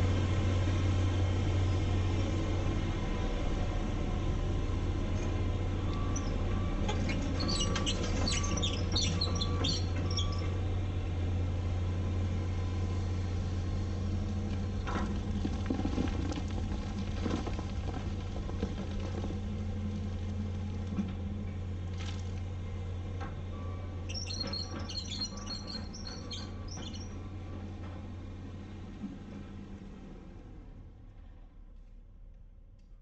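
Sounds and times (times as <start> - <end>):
excavator diesel engine running: 0.0 - 31.4
bird chirping: 6.2 - 6.4, 7.1 - 10.5, 24.1 - 27.2.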